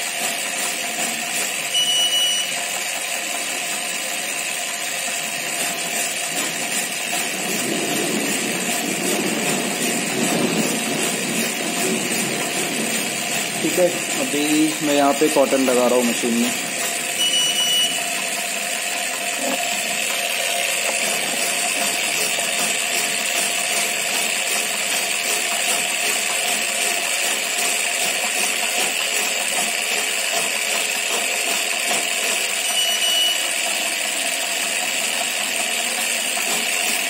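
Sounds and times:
wick cutter machine running: 0:00.0 - 0:37.0
short high beeps: 0:01.7 - 0:02.6, 0:17.2 - 0:18.1, 0:32.6 - 0:33.5.

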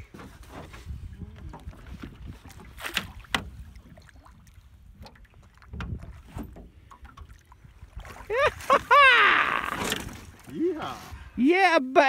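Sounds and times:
wind rumble on microphone: 0:00.0 - 0:08.8
fish splashing at boat side: 0:01.6 - 0:10.5.

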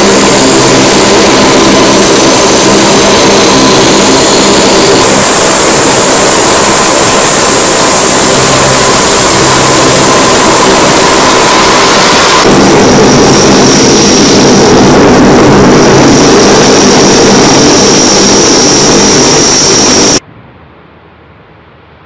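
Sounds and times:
turboprop propeller drone: 0:00.0 - 0:20.2
high turbine whine: 0:00.0 - 0:20.3.

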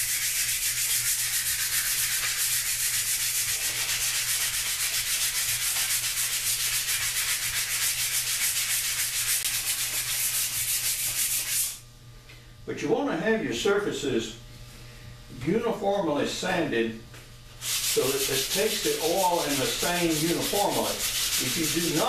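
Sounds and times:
sandpaper rubbing on wood: 0:00.0 - 0:11.8, 0:17.6 - 0:22.0.

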